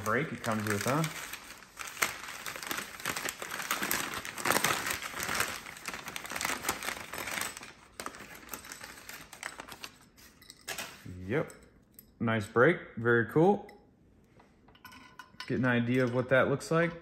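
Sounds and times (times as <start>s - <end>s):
packing wrap crinkling: 0.0s - 11.2s.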